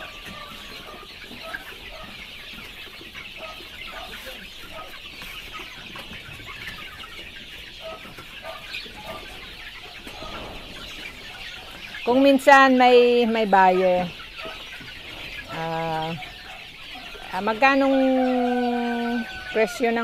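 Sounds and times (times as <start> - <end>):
chickens clucking: 0.0 - 20.0
chicks peeping: 0.0 - 20.0.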